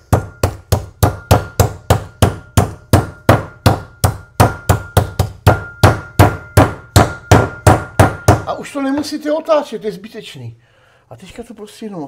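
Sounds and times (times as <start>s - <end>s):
meat mallet pounding: 0.0s - 8.6s.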